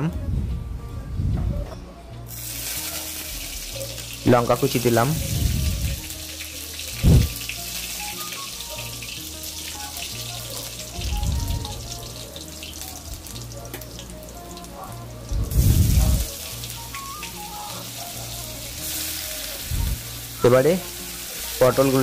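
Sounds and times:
soft background music: 0.0 - 22.0
dull low bumps: 0.1 - 2.0, 5.2 - 6.1, 7.0 - 7.4, 11.0 - 11.9, 15.3 - 16.3
seeds sizzling in hot oil: 2.3 - 22.0.

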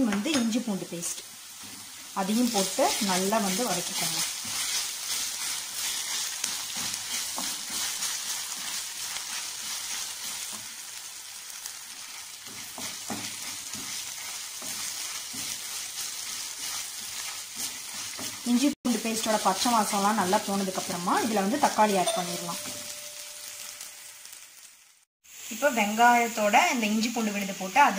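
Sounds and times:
onions sizzling in hot oil: 0.0 - 27.9
wooden spatula scraping pan: 1.6 - 10.6, 12.0 - 18.6.

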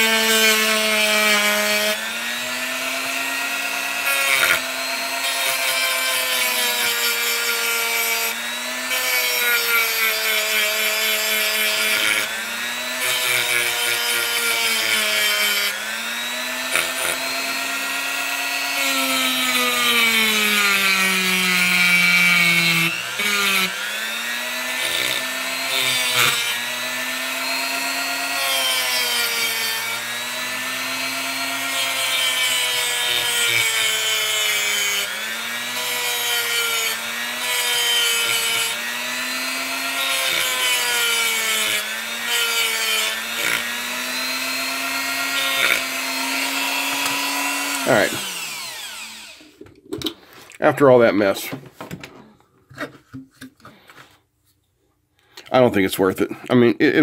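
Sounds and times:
rotary tool motor whine: 10.4 - 21.2, 21.9 - 49.5.

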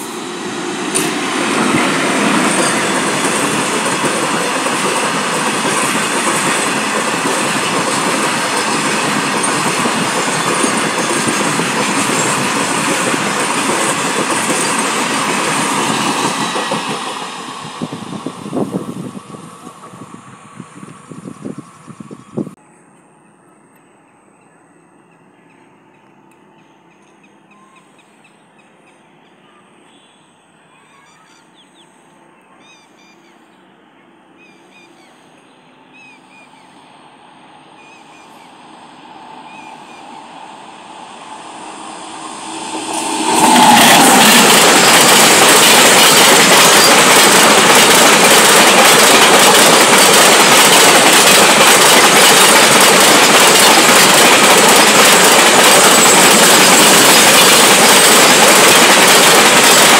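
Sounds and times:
freight train rumbling and rattling: 0.0 - 22.6, 36.0 - 59.9
faint bird chirps: 23.2 - 37.0.

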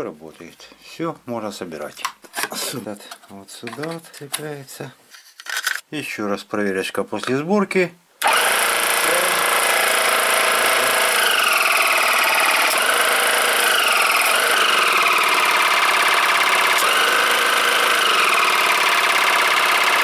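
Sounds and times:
air compressor running: 8.2 - 20.0.

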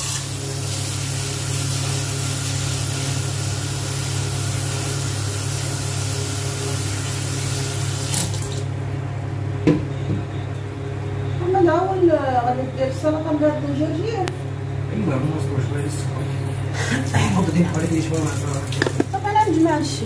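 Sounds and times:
kitchen tap running: 0.0 - 8.7, 16.8 - 20.0
steady low hum: 8.5 - 20.0.

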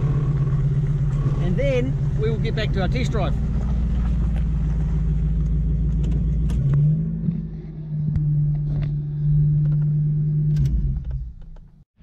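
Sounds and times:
engine running inside vehicle: 0.0 - 11.8.

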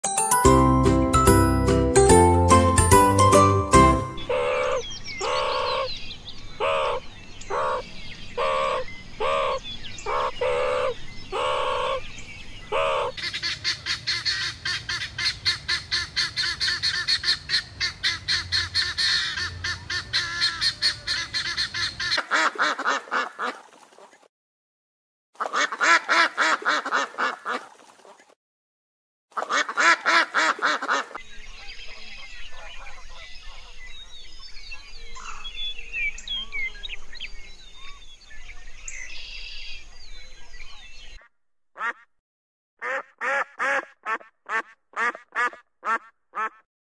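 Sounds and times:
animal calls: 4.2 - 5.9, 6.6 - 12.1, 12.7 - 13.6.

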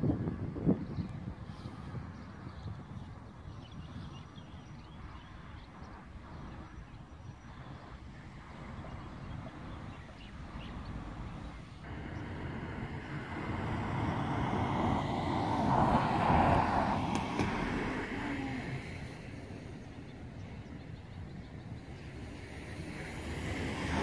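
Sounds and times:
vehicle passing by: 10.7 - 19.8, 22.1 - 24.0.

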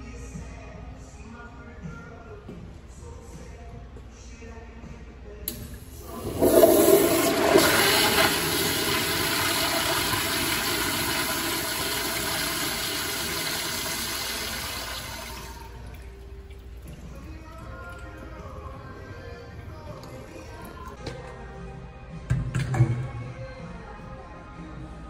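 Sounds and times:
toilet flushing: 5.5 - 18.5.

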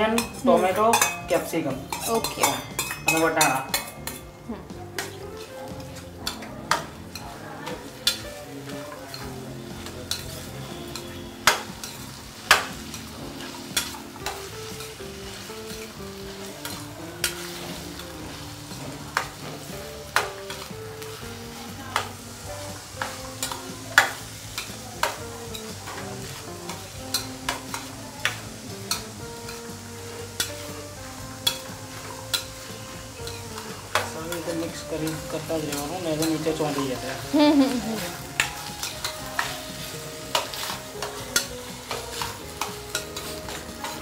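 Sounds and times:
vegetables sizzling in oil: 0.0 - 44.0
spoon clinking against pan: 0.1 - 4.3, 27.1 - 29.6, 31.4 - 32.6, 33.2 - 34.6, 40.3 - 43.6.

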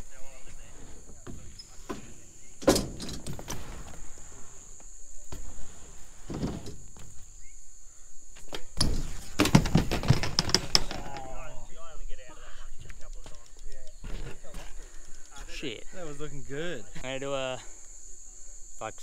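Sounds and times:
bike tyres rolling: 0.0 - 11.6
bike landing knocks: 0.3 - 4.2, 5.2 - 7.6, 8.3 - 11.5
bike crashing clatter: 8.5 - 11.4.

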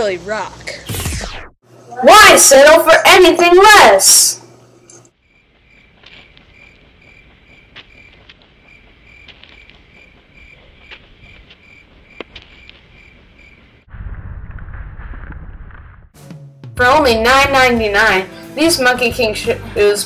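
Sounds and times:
insect chirping: 5.1 - 13.9.

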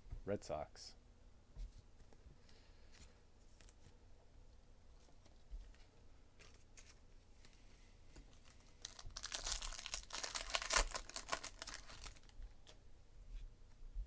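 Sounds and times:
foil wrapper crinkling and tearing: 8.3 - 12.4.

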